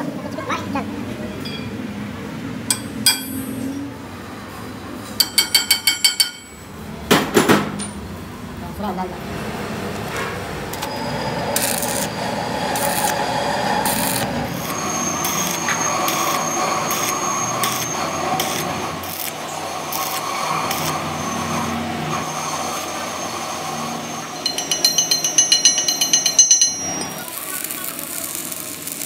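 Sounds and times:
chipping hammer tapping metal: 2.7s - 3.6s, 5.2s - 6.6s, 24.4s - 29.0s
welding arc crackling sizzle: 9.5s - 29.0s.

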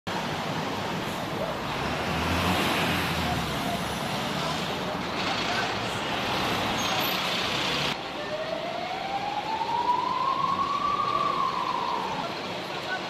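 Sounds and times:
car passing close by: 1.6s - 8.0s
emergency vehicle siren wailing: 8.0s - 13.0s.

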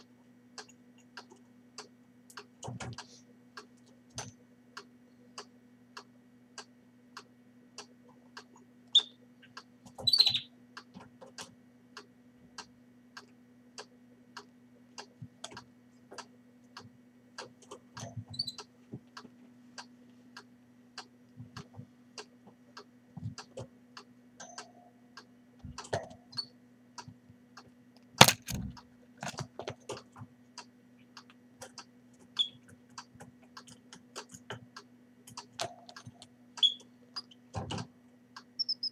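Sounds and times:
chick peeping: 8.9s - 10.5s, 38.6s - 38.9s.

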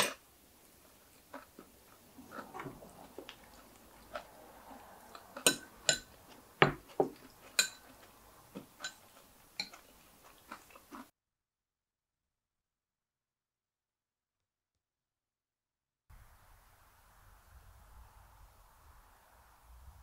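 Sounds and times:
utensils clinking against dishes: 5.1s - 10.0s.

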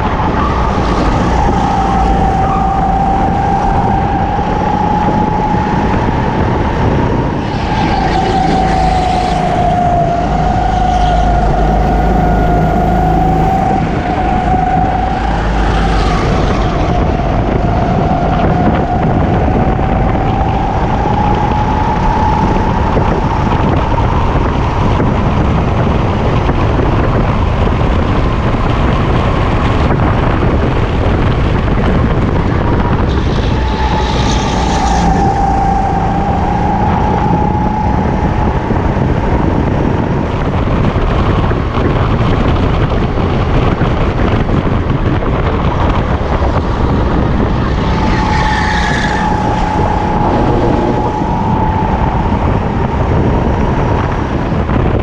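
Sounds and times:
heavy low rumble: 0.0s - 55.0s
racing kart engine whining: 0.0s - 55.0s.

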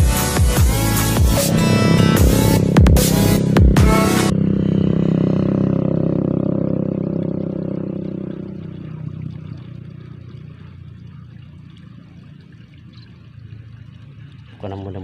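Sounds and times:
electronic music with steady beat: 0.0s - 4.3s
faint trickle of water: 7.2s - 15.0s.

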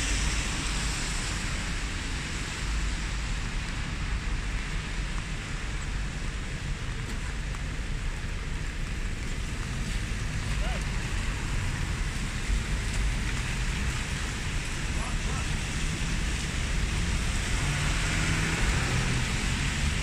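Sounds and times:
distant traffic rumble: 0.0s - 20.0s
rain on a wet street: 0.0s - 20.0s.

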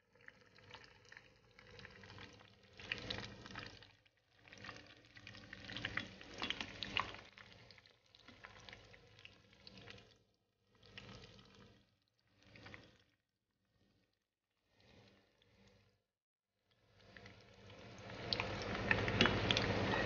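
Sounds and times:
food deep-frying in oil: 0.0s - 13.1s, 16.8s - 20.0s
skimmer stirring in oil: 4.4s - 10.1s, 17.1s - 20.0s.

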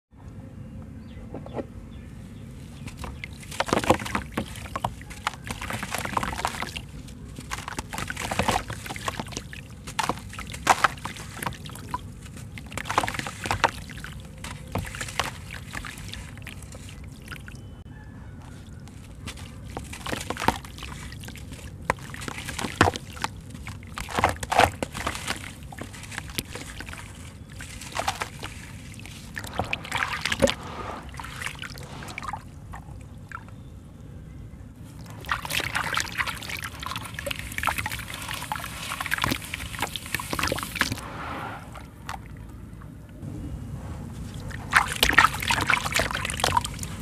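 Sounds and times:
water sloshing and dribbling: 2.4s - 34.0s, 34.8s - 47.0s
gritty mix crunching: 2.6s - 17.4s, 18.4s - 33.0s, 44.2s - 47.0s
hands splashing in water: 2.8s - 17.6s, 18.4s - 33.0s, 35.0s - 41.0s, 44.3s - 47.0s.

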